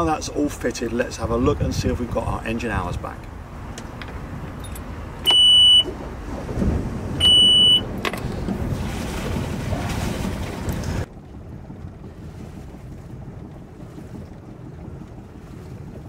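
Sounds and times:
engine low rumble: 0:00.0 - 0:16.0
alarm buzzer high beeps: 0:05.3 - 0:05.9, 0:07.2 - 0:07.8.

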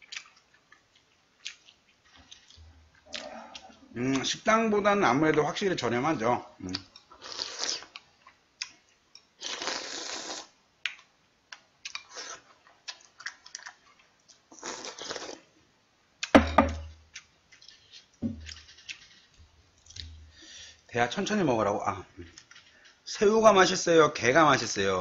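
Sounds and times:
slurping noodle soup: 0:07.2 - 0:08.0, 0:09.4 - 0:10.6, 0:12.0 - 0:12.6, 0:14.5 - 0:15.5
sharp thump with deep thud: 0:16.3 - 0:16.9, 0:18.2 - 0:18.5
utensil taps: 0:16.3 - 0:16.9, 0:18.2 - 0:18.5.

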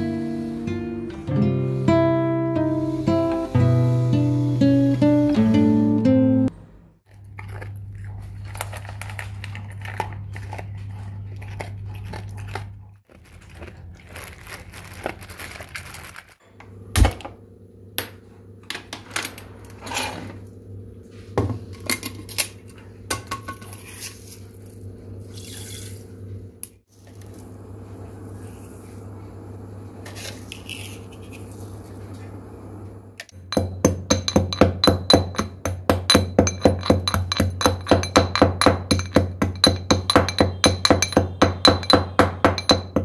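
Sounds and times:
steady low hum: 0:16.4 - 0:43.0
pots and utensils clinking: 0:21.4 - 0:24.5, 0:33.3 - 0:43.0.

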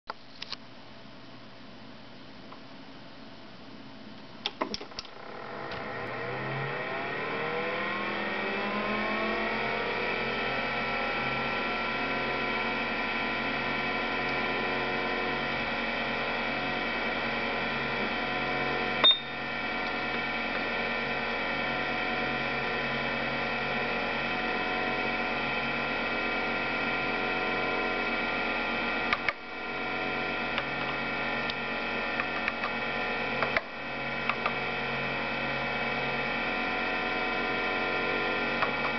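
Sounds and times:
computer drives and fan humming: 0:00.1 - 0:38.9
short high beep: 0:19.0 - 0:19.4.

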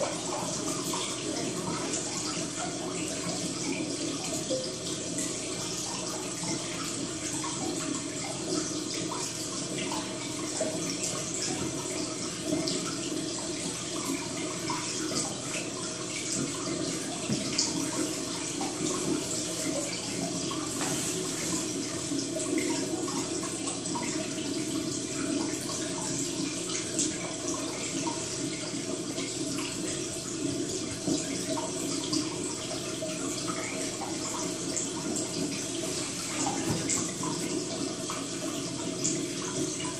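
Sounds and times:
small drips: 0:00.0 - 0:39.9
water trickling: 0:00.0 - 0:39.9.

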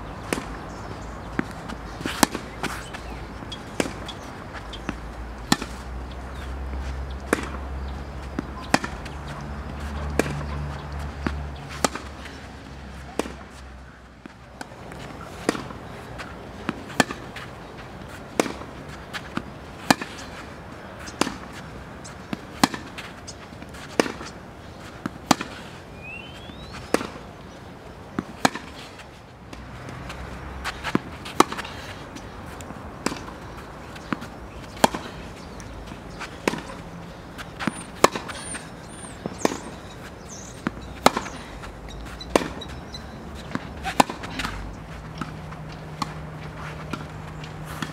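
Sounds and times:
tennis ball struck with racket: 0:00.2 - 0:00.6, 0:01.2 - 0:04.2, 0:04.8 - 0:06.5, 0:07.1 - 0:07.6, 0:08.3 - 0:12.3, 0:12.9 - 0:17.3, 0:18.3 - 0:20.3, 0:21.0 - 0:21.6, 0:22.3 - 0:23.0, 0:23.6 - 0:24.4, 0:25.0 - 0:25.6, 0:26.4 - 0:27.2, 0:28.2 - 0:28.8, 0:29.5 - 0:31.7, 0:32.6 - 0:41.4, 0:42.0 - 0:47.9.

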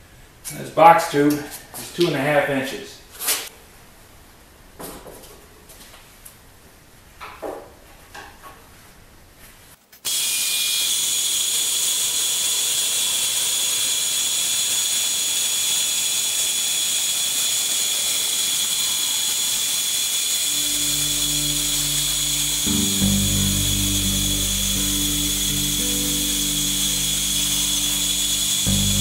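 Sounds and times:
band saw cutting steel: 0:10.1 - 0:29.0
music: 0:20.5 - 0:29.0.

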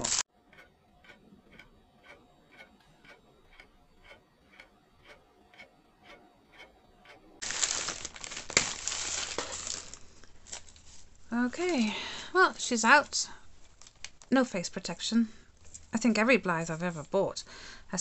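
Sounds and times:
plastic bag crinkling: 0:00.0 - 0:00.2, 0:07.4 - 0:11.9, 0:13.6 - 0:14.3
faint even ticking: 0:00.4 - 0:07.4.

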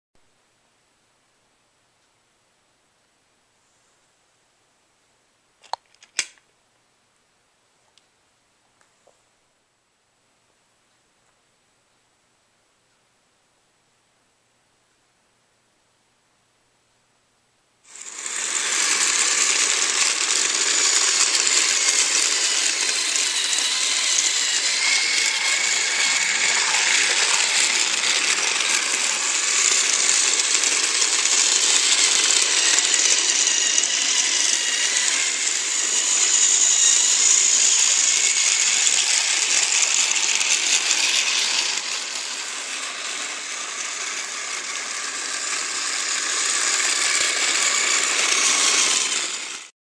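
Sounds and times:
toy train motor whirring and rattling: 0:05.9 - 0:06.4, 0:17.9 - 0:49.7.

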